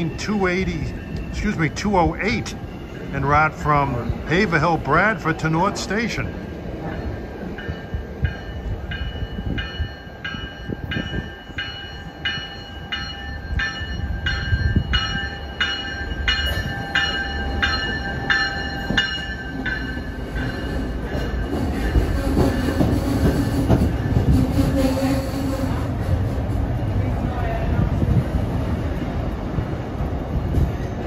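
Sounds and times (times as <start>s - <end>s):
train rumbling: 0.0s - 31.0s
warning bell ringing: 6.2s - 22.1s.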